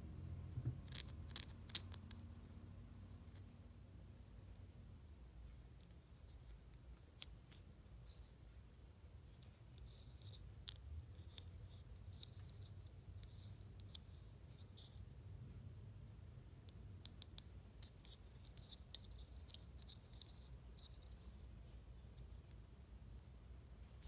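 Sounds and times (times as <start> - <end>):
low steady hum: 0.0 - 24.0
plastic pieces clicking: 0.8 - 2.2.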